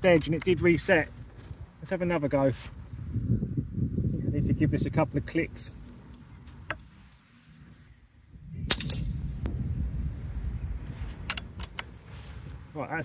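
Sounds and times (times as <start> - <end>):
air rifle shot: 8.6 - 9.5
pellet striking steel target: 8.7 - 9.2
faint clicks: 11.2 - 11.9.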